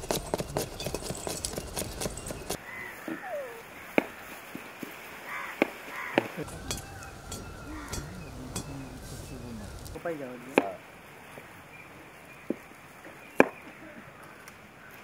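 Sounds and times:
knife chopping on wooden board: 0.0 - 2.6
short wavering calls: 0.0 - 10.0
low rumbling noise: 6.4 - 10.0.

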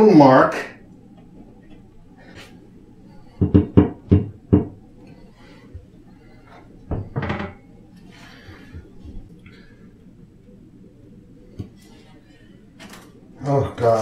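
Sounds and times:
bracket knocking against wall: 3.4 - 4.8.

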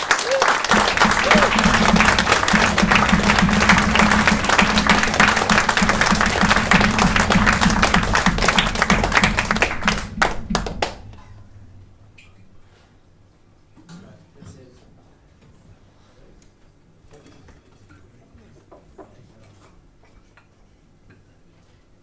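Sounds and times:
audience applauding: 0.0 - 11.1
low steady hum: 0.7 - 15.3.

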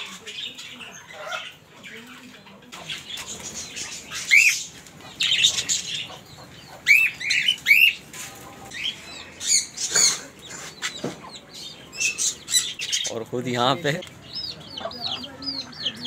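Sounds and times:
parrots screeching: 3.6 - 6.1, 6.8 - 8.0, 8.7 - 11.0.

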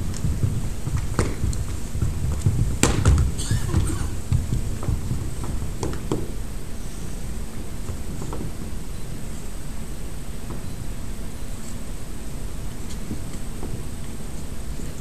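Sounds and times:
boots on wooden floor: 0.0 - 9.7
steady low rumble: 0.0 - 15.0.

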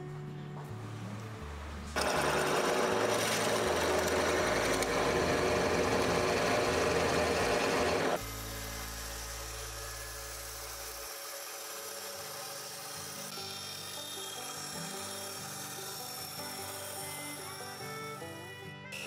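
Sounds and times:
background music with low notes: 0.0 - 3.6, 12.1 - 19.0
drill press boring through plywood: 2.0 - 18.2.

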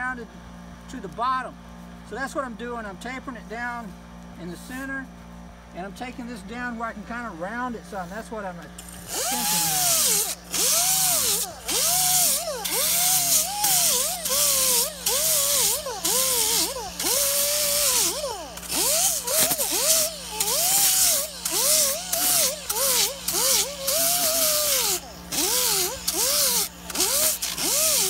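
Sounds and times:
air grinder sanding foam: 7.9 - 28.0.

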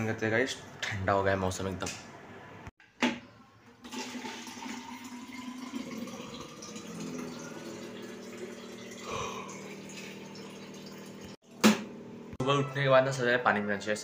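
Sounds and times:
water filling plastic bottle: 3.8 - 11.4.

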